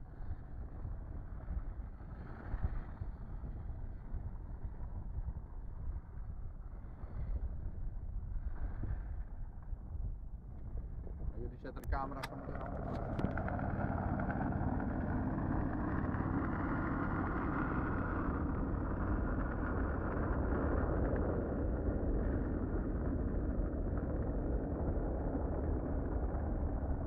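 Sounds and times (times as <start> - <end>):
car engine humming: 11.9 - 21.1.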